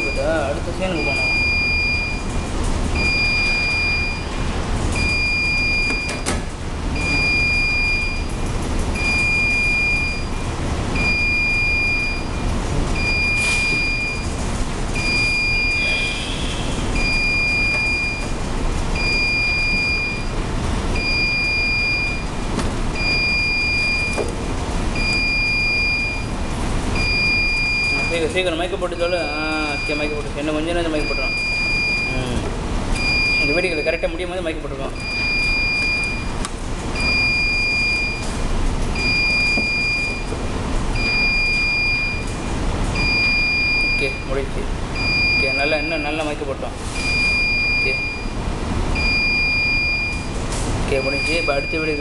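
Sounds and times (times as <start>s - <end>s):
high-pitched electronic beep: 7.0s - 8.3s, 47.0s - 48.4s.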